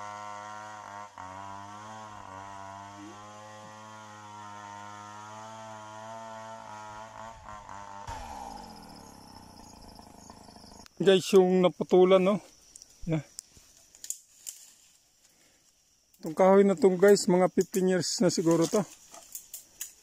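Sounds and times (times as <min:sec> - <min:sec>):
chainsaw cutting tree: 0:00.0 - 0:11.0
high insect buzz: 0:00.1 - 0:16.6.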